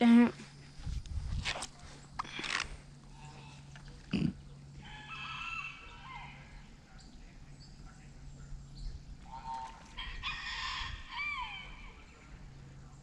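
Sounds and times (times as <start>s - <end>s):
steady low hum: 0.0s - 13.0s
faint distant voices: 0.3s - 13.0s.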